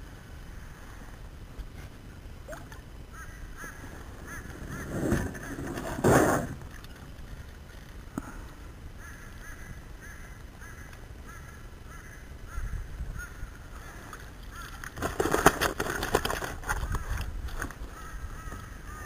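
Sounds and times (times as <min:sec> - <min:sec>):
bird calling: 0:02.1 - 0:07.1, 0:08.2 - 0:15.0, 0:17.8 - 0:19.0.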